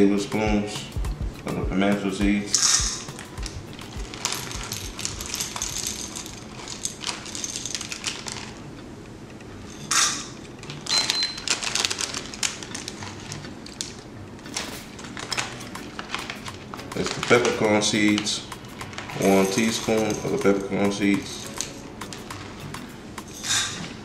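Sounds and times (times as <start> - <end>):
berries rattling against spoon: 2.8 - 8.6, 9.6 - 14.0, 14.6 - 24.0
plastic bag crinkling: 2.8 - 8.8, 9.7 - 22.6.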